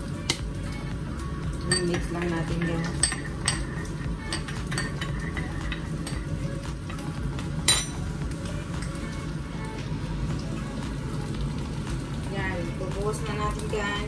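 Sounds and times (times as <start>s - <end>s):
fish sizzling in a pan: 0.0s - 14.0s
metal spoon clinking glass bowl: 1.7s - 7.0s, 7.6s - 8.0s.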